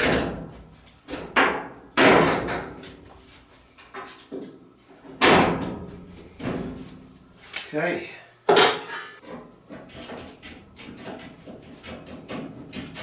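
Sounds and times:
sheet metal bangs and clunks: 0:00.0 - 0:02.8, 0:05.1 - 0:06.8.

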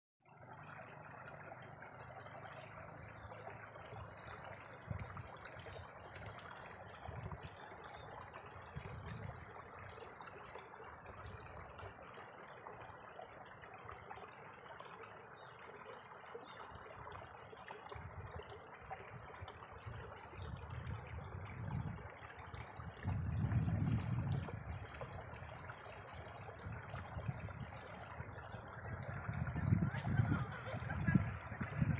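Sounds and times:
running water: 0:00.3 - 0:31.9
wind buffeting microphone: 0:04.8 - 0:07.7, 0:08.5 - 0:09.7, 0:19.1 - 0:31.9.

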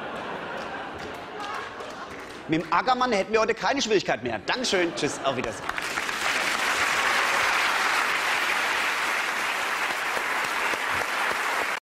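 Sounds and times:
audience applauding: 0:00.0 - 0:02.8, 0:05.6 - 0:11.8.

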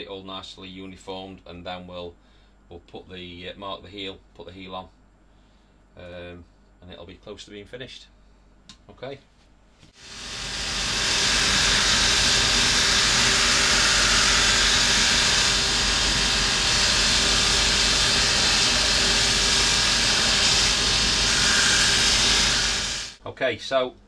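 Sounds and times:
shoe finishing machine running: 0:10.0 - 0:23.2.

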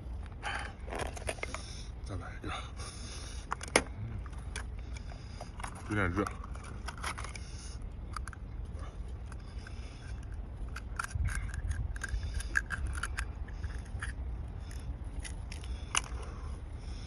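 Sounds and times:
metal spoon scraping oyster shell: 0:10.7 - 0:14.2.

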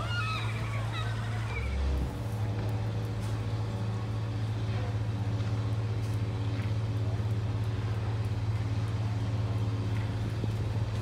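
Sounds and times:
ship engine humming: 0:00.0 - 0:06.5.

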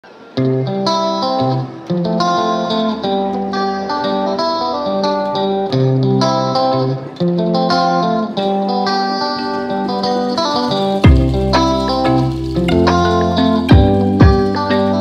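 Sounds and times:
melody of sharply struck notes: 0:09.3 - 0:15.0
bass line: 0:11.0 - 0:15.0.

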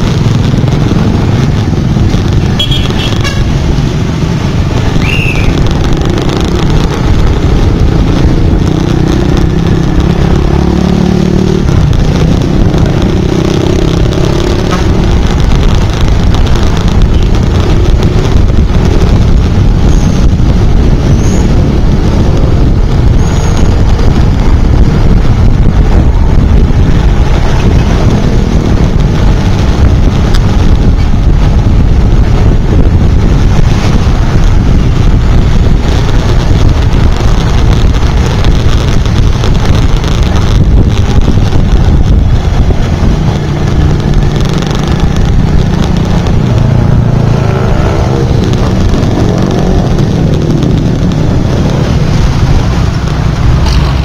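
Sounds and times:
road and wind rumble: 0:00.0 - 0:54.0.

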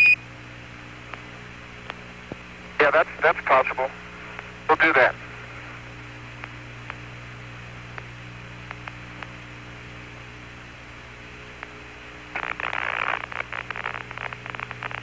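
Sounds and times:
radio hum and hiss: 0:00.0 - 0:15.0
loud burst of radio static: 0:02.8 - 0:04.0, 0:04.7 - 0:05.2, 0:12.3 - 0:15.0.

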